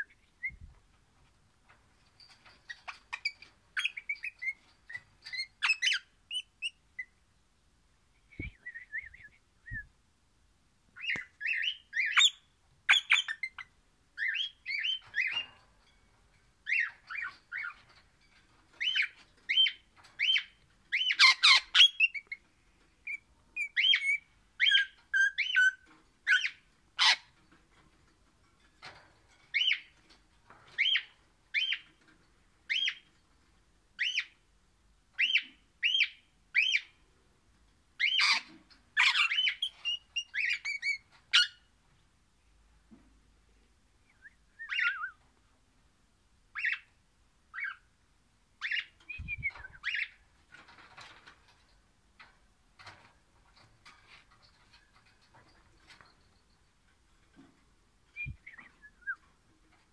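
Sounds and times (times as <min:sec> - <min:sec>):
parakeet squawks: 0:26.3 - 0:27.3
parakeet whistling: 0:44.6 - 0:45.2.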